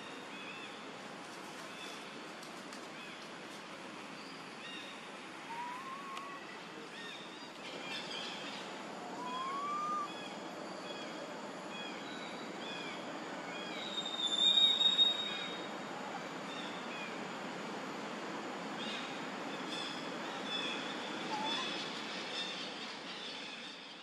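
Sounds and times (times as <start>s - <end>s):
birds calling: 4.6s - 11.2s, 19.6s - 23.2s.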